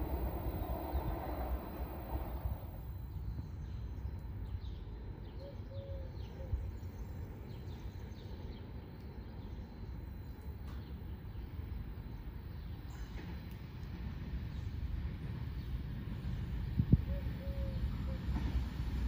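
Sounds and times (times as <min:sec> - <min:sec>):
low steady rumble: 0:00.0 - 0:04.8
train noise: 0:00.0 - 0:05.2, 0:06.6 - 0:19.0.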